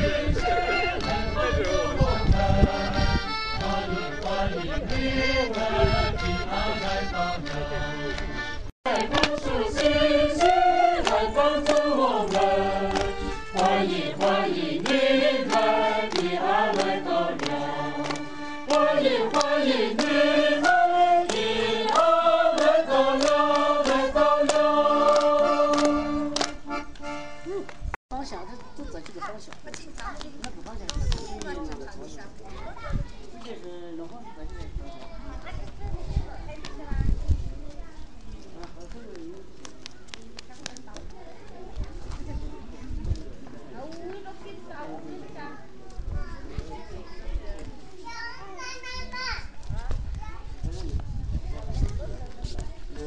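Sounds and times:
women singing in unison: 0.0 - 6.6, 8.9 - 26.5.

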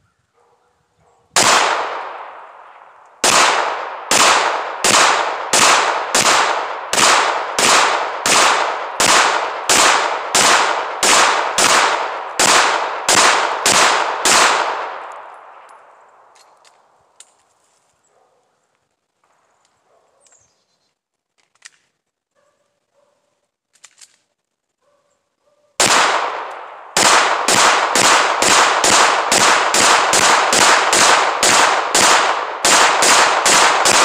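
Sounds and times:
handgun shots echoing: 1.4 - 17.3, 25.8 - 34.0.

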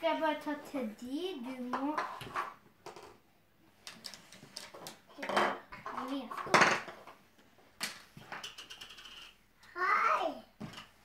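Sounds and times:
plastic toys clattering on table: 1.7 - 3.2, 3.8 - 7.2, 7.8 - 9.4
children's voices: 9.6 - 10.6.

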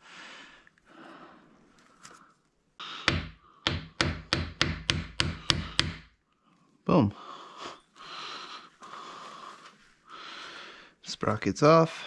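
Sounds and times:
faint handling noise: 1.6 - 2.6.

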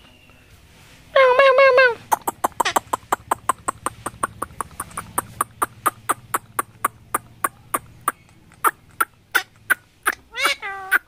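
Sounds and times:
parakeet clicking: 2.1 - 10.2.

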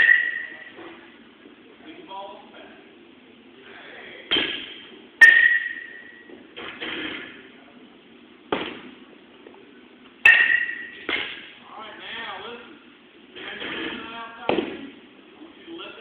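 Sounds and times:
bat pinging on balls: 0.0 - 0.8, 4.3 - 6.3, 10.2 - 11.6.

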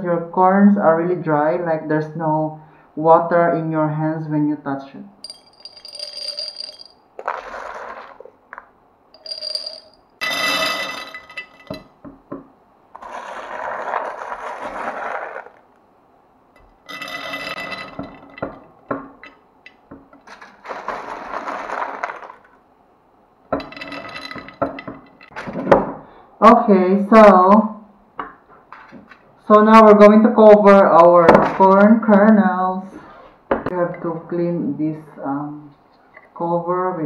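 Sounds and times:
popcorn kernels poured into glass jars: 5.3 - 8.3, 9.2 - 11.8, 13.0 - 15.6, 16.9 - 18.6, 20.3 - 22.6.

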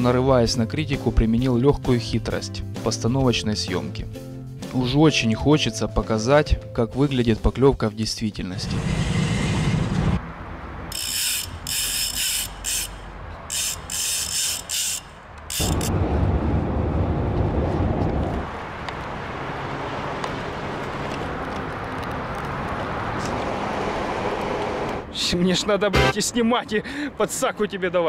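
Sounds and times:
fishing reel ratchet clicking: 10.9 - 15.8
reel winding noise: 10.9 - 15.8.

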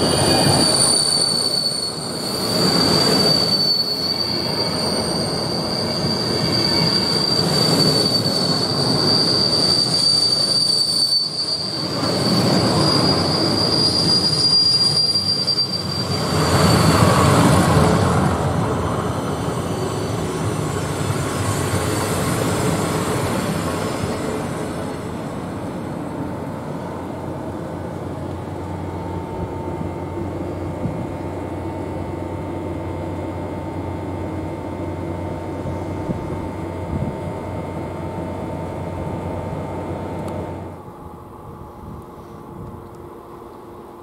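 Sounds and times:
train coaches rumbling: 0.0 - 31.7.

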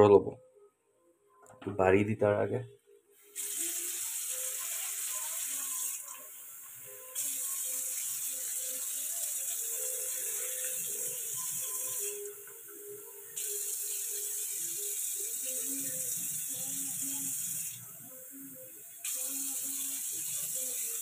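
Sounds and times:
food sizzling in a pan: 3.2 - 21.0
water pouring: 3.3 - 12.6.

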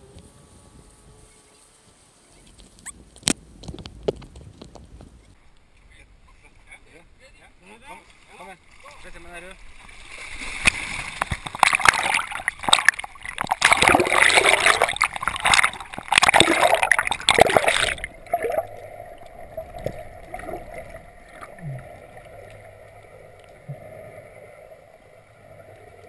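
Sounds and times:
faint steady hum: 0.0 - 3.6, 4.4 - 26.0
water splashing and gurgling: 8.0 - 26.0
muffled underwater sound: 13.4 - 26.0.

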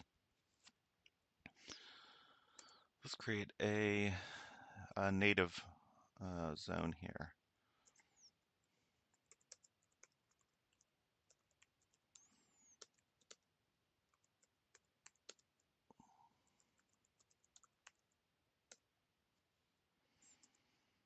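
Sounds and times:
faint keyboard typing: 2.5 - 2.9, 7.8 - 18.9, 20.2 - 20.8.

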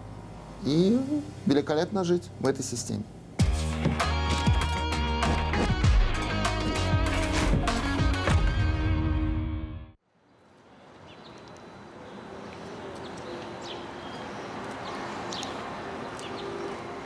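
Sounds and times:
outdoor background noise: 0.0 - 4.0, 10.0 - 17.0.

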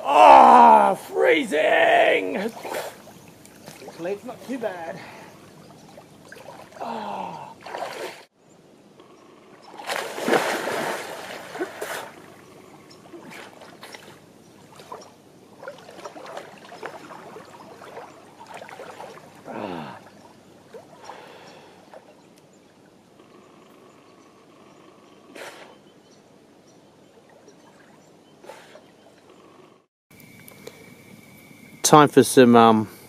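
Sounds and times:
water lapping: 2.2 - 8.3, 9.5 - 24.0, 26.8 - 29.6
swimming splashes: 2.3 - 8.3, 9.7 - 22.2
person plunging into water: 5.9 - 8.3, 9.7 - 12.4.

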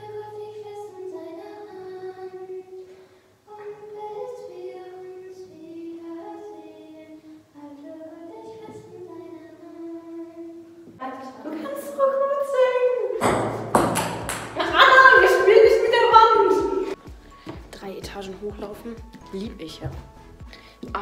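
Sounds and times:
girl singing slow melody: 0.0 - 13.2.

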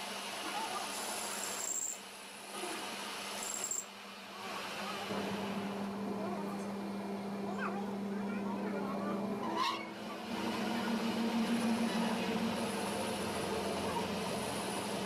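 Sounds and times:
metal lathe humming: 5.1 - 15.0.

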